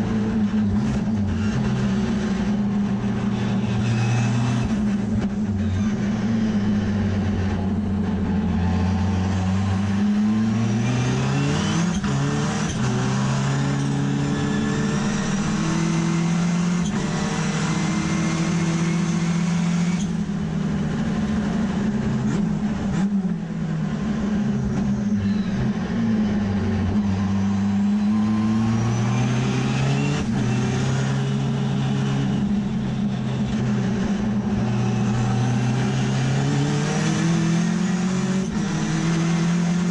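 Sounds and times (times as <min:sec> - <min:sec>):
race car rotary engine at full throttle: 0:00.0 - 0:39.9.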